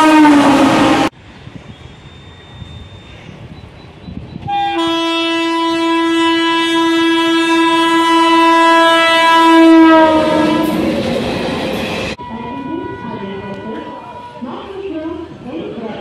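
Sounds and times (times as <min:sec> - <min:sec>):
train horn blast: 0:00.0 - 0:01.1, 0:04.4 - 0:11.0, 0:12.1 - 0:14.6
train coaches rumbling and clattering: 0:00.4 - 0:05.6, 0:07.0 - 0:16.0.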